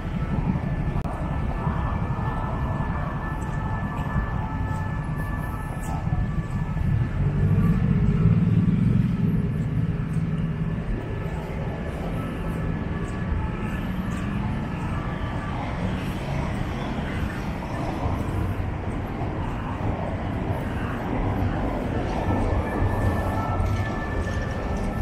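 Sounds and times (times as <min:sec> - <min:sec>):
road traffic rumbling: 0:00.0 - 0:25.0
vehicle engine passing close: 0:06.9 - 0:12.7.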